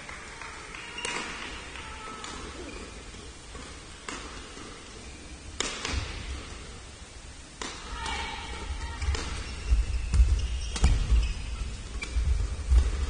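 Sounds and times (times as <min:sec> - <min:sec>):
court shoes squeaking: 0:01.0 - 0:01.5, 0:02.2 - 0:06.5, 0:08.8 - 0:13.0
racket hitting shuttlecock: 0:01.0 - 0:01.5, 0:03.5 - 0:04.7, 0:05.6 - 0:06.6, 0:07.6 - 0:08.3.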